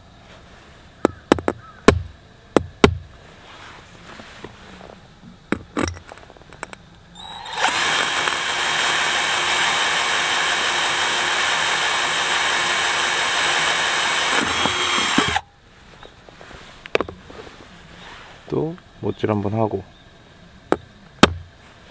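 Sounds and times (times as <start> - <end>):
cordless drill grinding through tile: 7.2 - 15.4.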